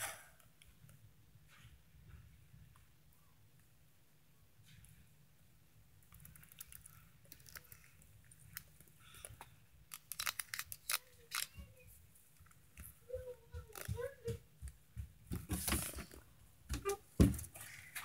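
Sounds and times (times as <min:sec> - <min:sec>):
camera handling clicks and rustles: 0:09.9 - 0:11.6.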